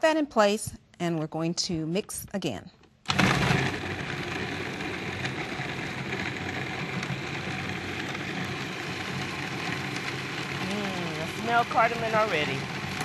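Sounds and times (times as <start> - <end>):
food processor running: 3.1 - 13.0.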